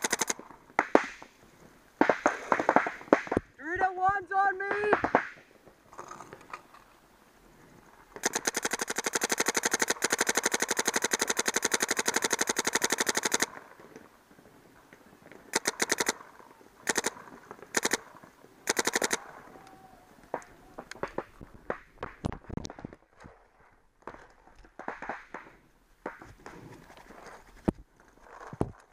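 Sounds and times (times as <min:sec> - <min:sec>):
paintball marker firing: 0:00.0 - 0:01.3, 0:04.7 - 0:05.4, 0:08.2 - 0:13.5, 0:17.8 - 0:18.0.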